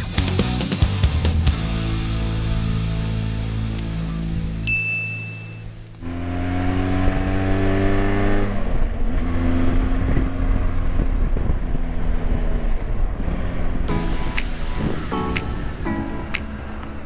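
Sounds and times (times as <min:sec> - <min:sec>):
motorcycle engine accelerating: 0:05.6 - 0:17.0
wind on microphone: 0:08.9 - 0:16.8.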